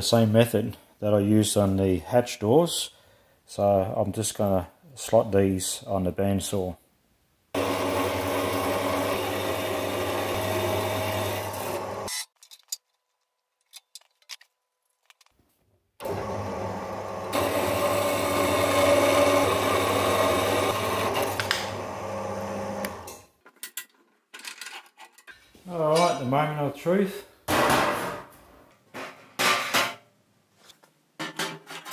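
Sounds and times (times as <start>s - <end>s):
bandsaw cutting steel: 7.6s - 12.2s, 16.0s - 23.2s.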